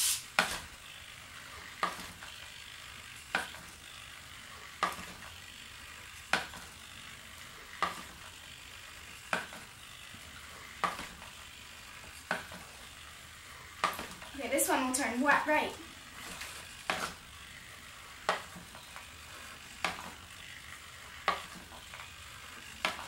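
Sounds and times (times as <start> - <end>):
robot feet tapping on wooden floor: 9.3 - 9.7, 10.8 - 11.2, 13.8 - 14.3, 18.2 - 19.0, 19.8 - 20.2, 21.2 - 21.7.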